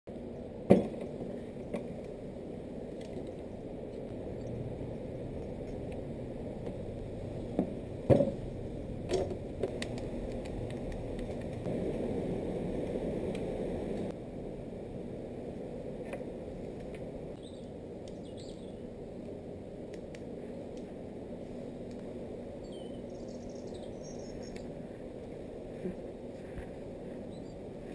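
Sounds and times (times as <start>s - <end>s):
steady background noise: 0.1s - 27.9s
bird chirping faintly: 22.6s - 24.6s.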